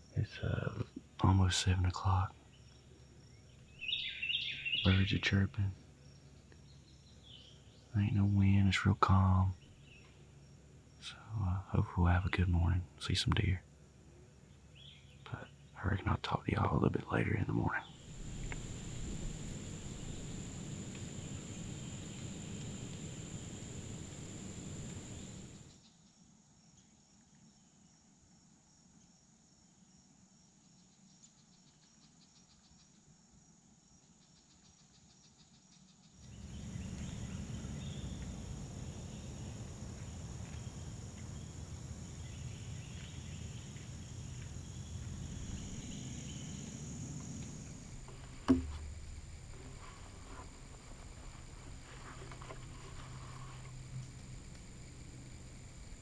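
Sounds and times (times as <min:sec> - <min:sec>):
insects trilling: 0:00.0 - 0:25.9, 0:31.6 - 0:56.0
low steady rumble: 0:17.8 - 0:25.7, 0:36.2 - 0:56.0
sharp knock: 0:48.4 - 0:49.0.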